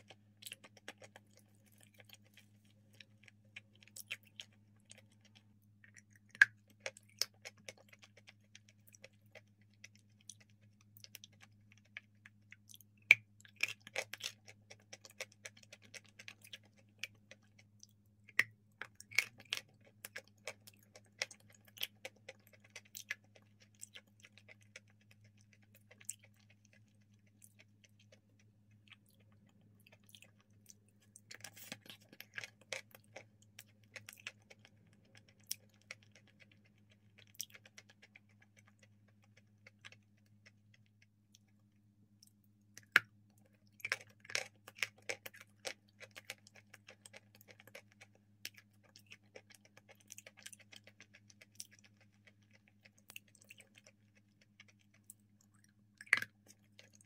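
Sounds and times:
wet mouth clicks and smacks: 0.0 - 26.8, 42.2 - 57.0
person chewing sticky paste: 0.0 - 57.0.

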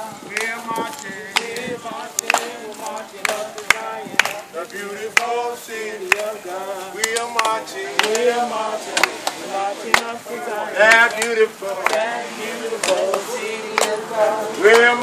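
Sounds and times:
congregation singing: 0.0 - 15.0
handclaps keeping time: 0.3 - 6.4, 7.0 - 10.2, 10.8 - 12.2, 12.8 - 14.0.

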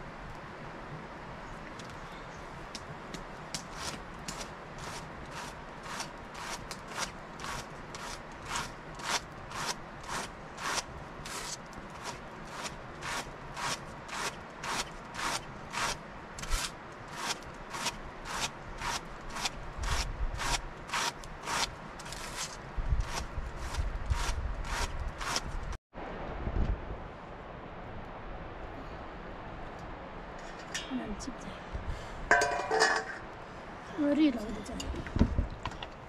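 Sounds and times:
hand carders brushing wool: 3.6 - 25.6.

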